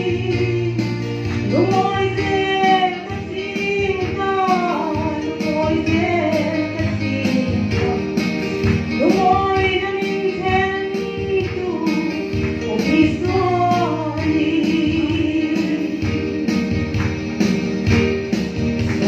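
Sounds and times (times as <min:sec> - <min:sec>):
woman singing: 0:00.0 - 0:17.0
guitar: 0:00.0 - 0:19.0.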